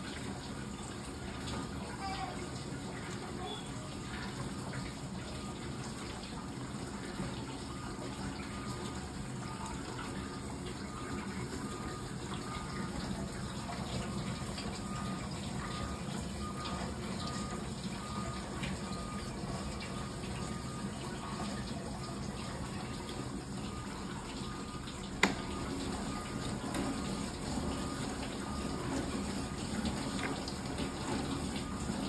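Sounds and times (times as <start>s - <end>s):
dishwasher pump humming: 0.0s - 32.0s.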